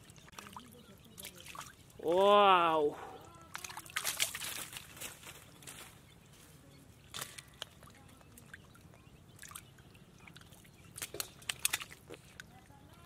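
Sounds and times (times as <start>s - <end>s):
splashes of shallow muddy water: 0.0s - 2.3s, 2.9s - 5.3s, 7.1s - 12.7s.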